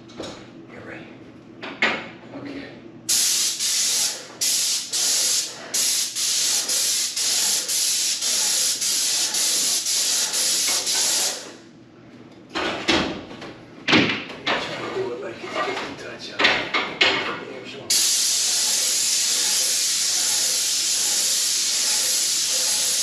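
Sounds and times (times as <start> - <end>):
paint sprayer hissing bursts: 3.1 - 11.5, 17.9 - 23.0.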